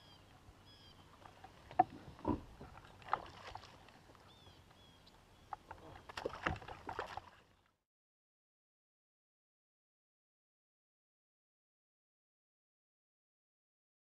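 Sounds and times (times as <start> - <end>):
water lapping: 0.8 - 7.7
fish splashing: 2.3 - 3.9, 5.9 - 7.5.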